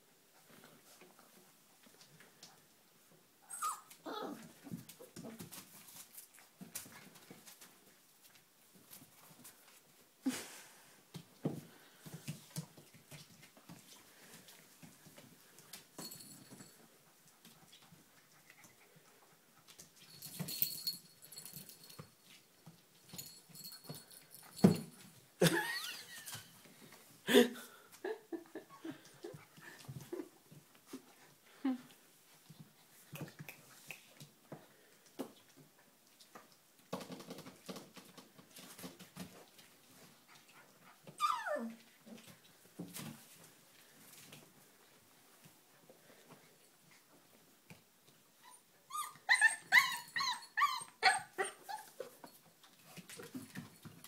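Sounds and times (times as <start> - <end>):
puppy squeak: 3.5 - 4.4, 48.5 - 52.0
puppies scuffling on a blanket: 3.9 - 10.3, 11.0 - 25.4, 32.0 - 48.3, 51.6 - 54.0.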